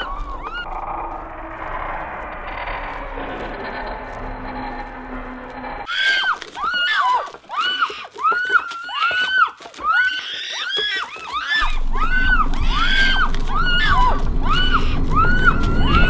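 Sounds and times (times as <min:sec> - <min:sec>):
low rumble: 0:00.0 - 0:05.9, 0:11.6 - 0:16.0
overlapping high-pitched shrieks: 0:00.0 - 0:16.0.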